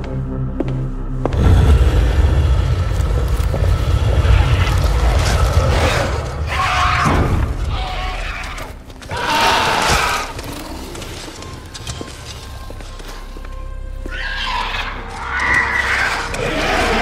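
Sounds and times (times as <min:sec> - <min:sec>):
film music: 0:00.0 - 0:17.0
deep booming rumble: 0:01.3 - 0:07.8
creature shrieking calls: 0:04.2 - 0:10.4, 0:14.0 - 0:17.0.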